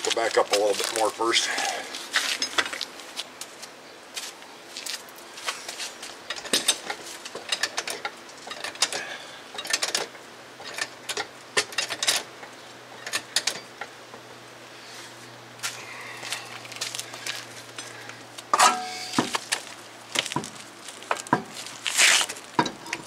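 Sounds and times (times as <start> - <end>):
car jack clicking and clunking: 6.3 - 14.2, 18.5 - 19.6, 22.6 - 23.0.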